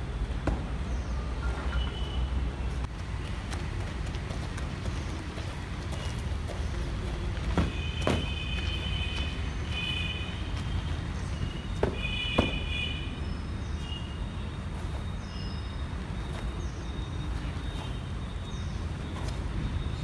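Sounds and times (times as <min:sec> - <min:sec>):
birds chirping: 0:00.2 - 0:20.0
sharp knocks: 0:11.8 - 0:12.7.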